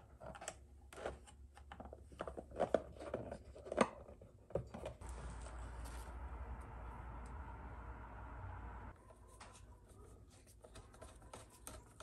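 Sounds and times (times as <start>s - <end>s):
plastic and wire clicks and rustles: 9.1s - 12.0s.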